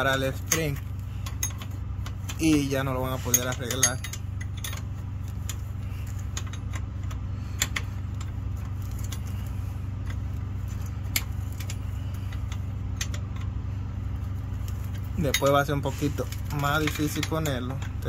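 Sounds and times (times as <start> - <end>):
engine idling hum: 0.0 - 18.0
wrench clicking on metal: 0.1 - 4.9.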